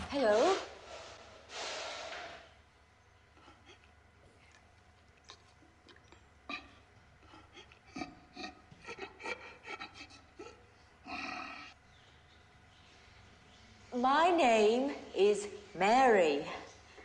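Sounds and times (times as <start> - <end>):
faint rubbing and scraping: 0.0 - 2.6
low steady hum: 0.0 - 17.0.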